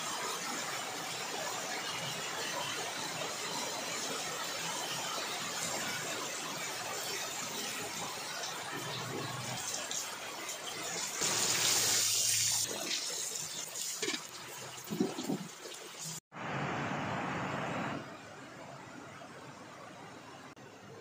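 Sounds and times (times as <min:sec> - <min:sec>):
food deep-frying in oil: 0:00.0 - 0:16.3.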